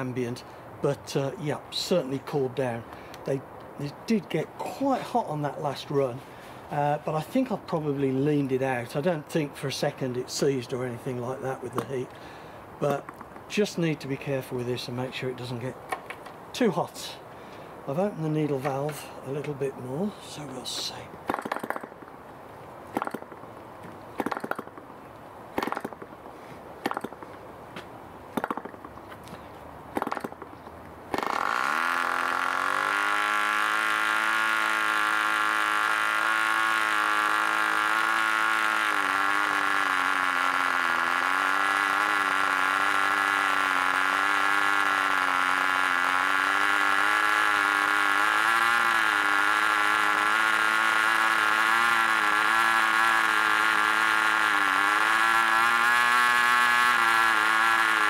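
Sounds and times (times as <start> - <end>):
model engine bursts when flicked: 31.1 - 58.0
model engine running high buzz: 31.1 - 58.0.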